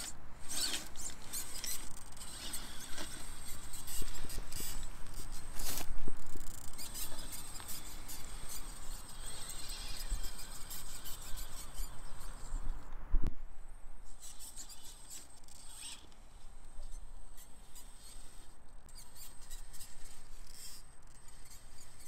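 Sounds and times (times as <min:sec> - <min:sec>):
tyres scraping on stone: 0:00.0 - 0:12.0
high-pitched electric motor whine: 0:00.0 - 0:12.9.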